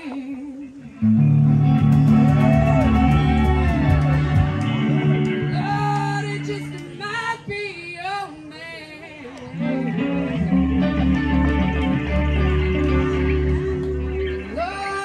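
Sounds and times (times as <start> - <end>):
person singing: 0.0 - 15.0
blues-rock band playing: 1.0 - 7.3, 9.6 - 14.8
electric guitar notes bending: 1.0 - 7.4, 9.6 - 14.9.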